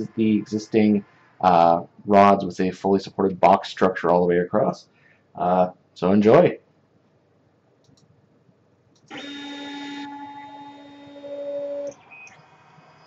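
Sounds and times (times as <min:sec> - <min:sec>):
stepper motors whining: 0:09.1 - 0:13.0.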